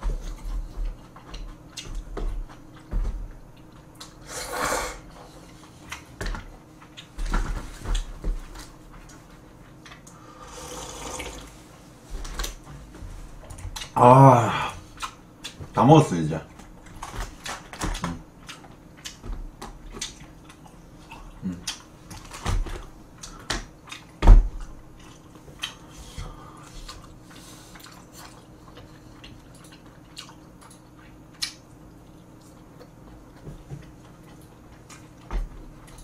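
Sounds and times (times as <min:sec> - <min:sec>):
chewing: 0:05.3 - 0:06.2, 0:23.2 - 0:24.2, 0:25.0 - 0:36.0.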